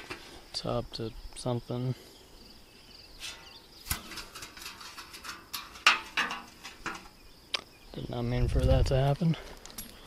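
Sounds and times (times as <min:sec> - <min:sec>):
crickets chirping: 0:00.0 - 0:10.0
metal sheet knocking and clicking: 0:03.9 - 0:07.1.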